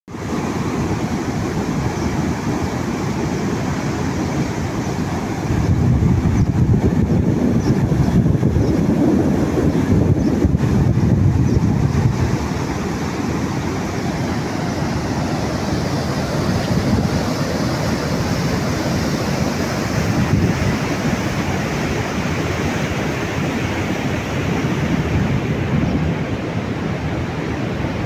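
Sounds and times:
water rushing over weir: 0.1s - 28.0s
wind buffeting microphone: 0.2s - 28.0s.

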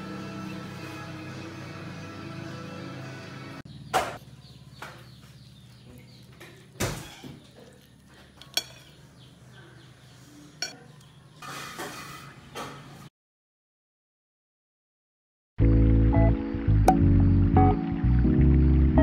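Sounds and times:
fork scraping ceramic plate: 8.5s - 9.0s, 11.4s - 12.4s.

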